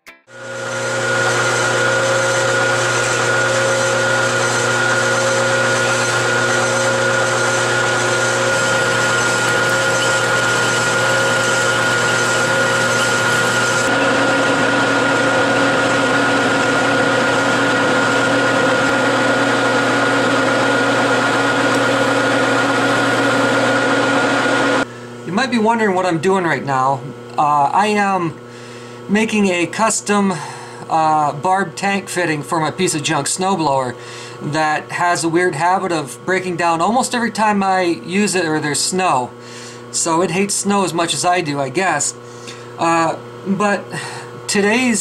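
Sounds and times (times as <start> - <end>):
metal lathe whining: 0.3 - 24.9
mechanical hum: 0.3 - 45.0.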